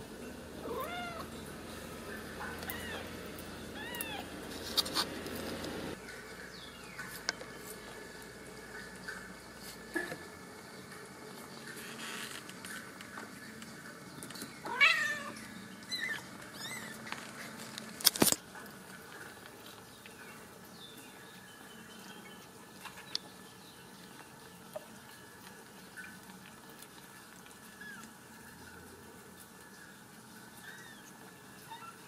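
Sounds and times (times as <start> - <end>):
kittens mewing: 0.6 - 5.6.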